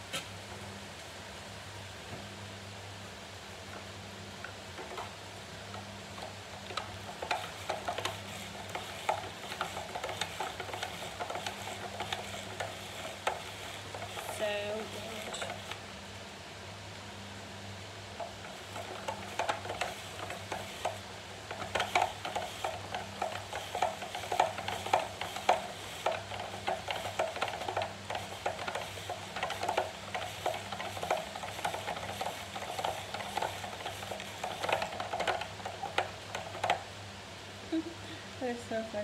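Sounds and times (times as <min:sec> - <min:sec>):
spiralizer blade crackling and clicking: 0:04.4 - 0:15.9, 0:18.2 - 0:37.0.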